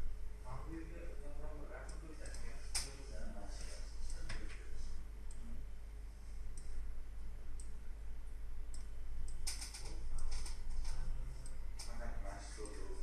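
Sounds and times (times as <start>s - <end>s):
low electrical hum: 0.0s - 13.0s
computer mouse clicking: 1.8s - 3.0s, 7.5s - 7.8s, 8.7s - 13.0s.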